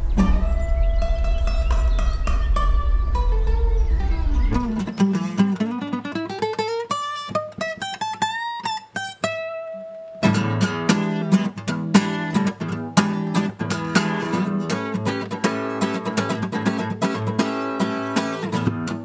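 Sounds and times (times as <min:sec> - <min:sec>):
acoustic guitar picked notes: 0:00.0 - 0:19.0
acoustic guitar strummed chords: 0:00.0 - 0:19.0.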